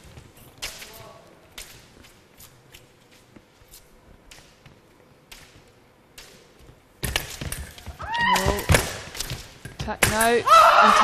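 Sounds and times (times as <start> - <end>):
feet stamping and knocks: 6.6 - 10.4.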